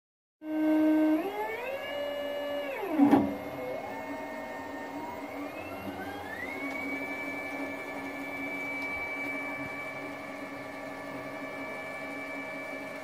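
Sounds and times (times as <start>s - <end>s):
stepper motors whining: 0.6s - 13.0s.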